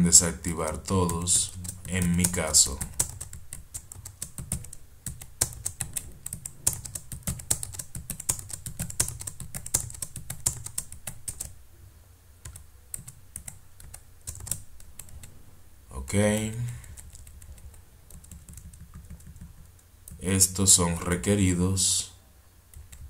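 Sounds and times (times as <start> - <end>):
computer keyboard keystrokes: 0.6 - 11.6, 12.4 - 15.3, 16.7 - 20.2, 22.7 - 23.0.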